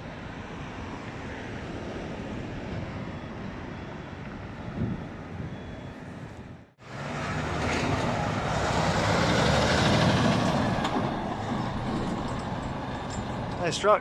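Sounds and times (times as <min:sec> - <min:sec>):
diesel truck driving past: 0:06.8 - 0:14.0.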